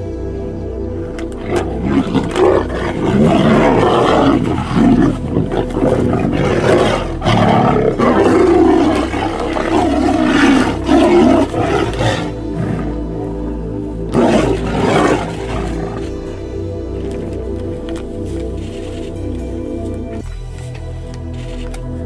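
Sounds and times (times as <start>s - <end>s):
tigers roaring: 1.1s - 17.5s.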